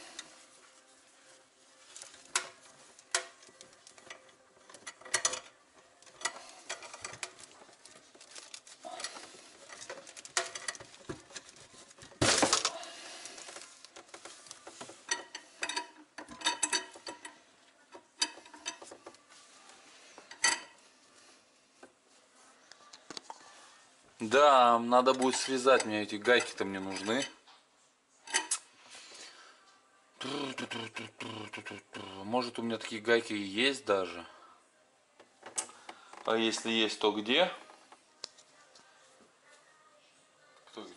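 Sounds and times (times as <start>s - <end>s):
metal spanners clinking on nut: 4.1s - 5.5s, 15.1s - 17.4s.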